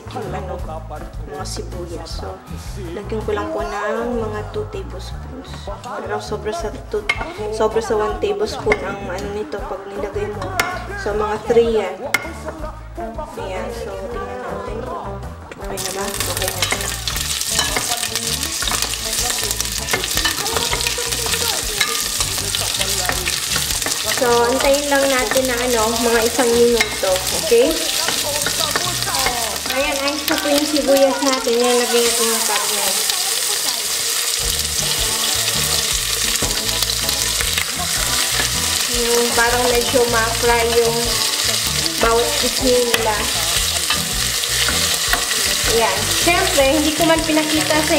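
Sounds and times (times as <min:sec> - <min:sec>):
onions sizzling in hot oil: 0:15.7 - 0:47.9.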